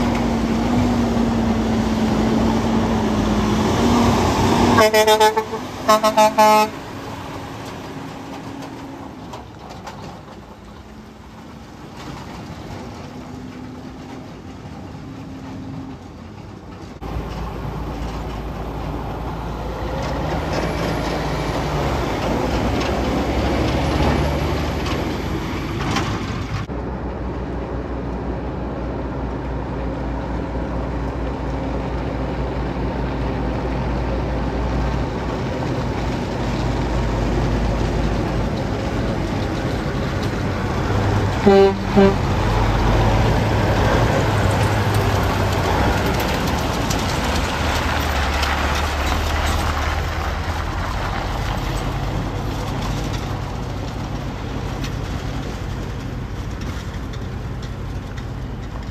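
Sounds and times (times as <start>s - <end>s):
cement mixer truck driving past: 0.0s - 58.9s
dump truck engine running: 0.0s - 58.9s
truck air horn blasts: 4.7s - 6.8s, 41.4s - 42.4s.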